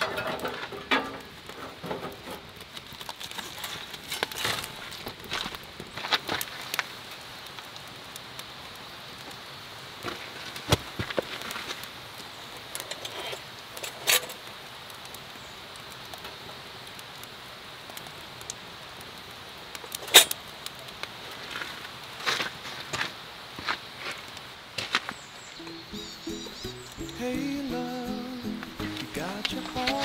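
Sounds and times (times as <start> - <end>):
faint steady hiss: 0.0 - 30.0
lantern metal clicks and clinks: 19.9 - 20.4.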